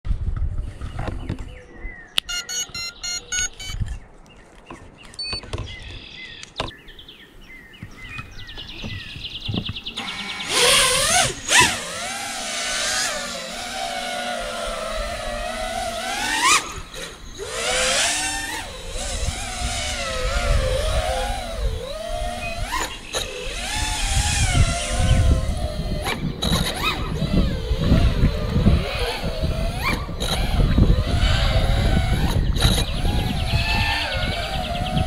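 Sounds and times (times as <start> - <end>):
wind rumbling on microphone: 0.1 - 2.2, 3.6 - 35.0
quadcopter motors whining: 7.9 - 35.0.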